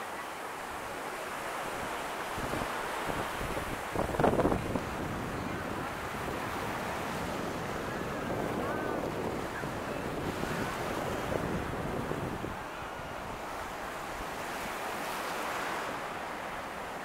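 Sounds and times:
surf washing in: 0.0 - 17.0
wind buffeting microphone: 2.3 - 15.7.

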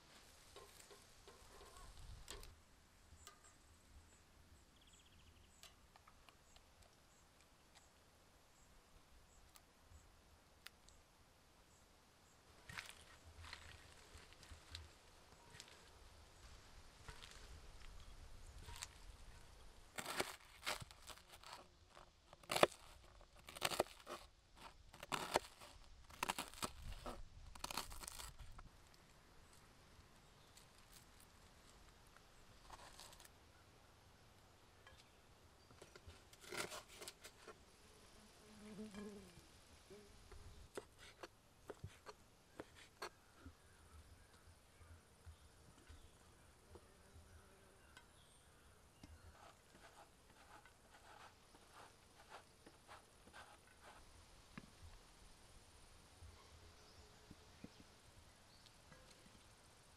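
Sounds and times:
knife crunching through toasted bread: 20.0 - 28.6, 36.2 - 37.5.

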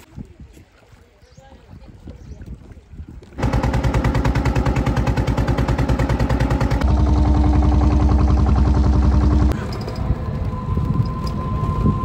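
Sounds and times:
boat engine chugging: 3.4 - 12.0.

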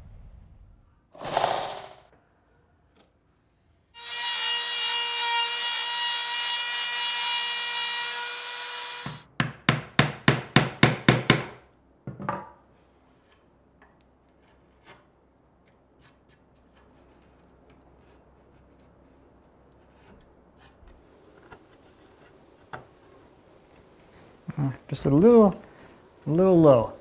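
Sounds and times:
chisel being struck: 9.0 - 11.6.

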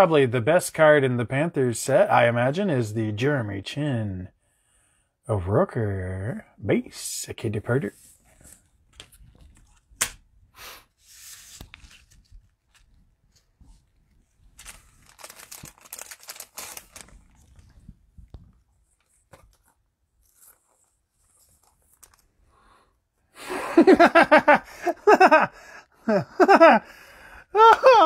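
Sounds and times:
cards rustling: 11.0 - 17.8, 18.4 - 22.4
cellophane pack tearing and crinkling: 14.6 - 17.7.

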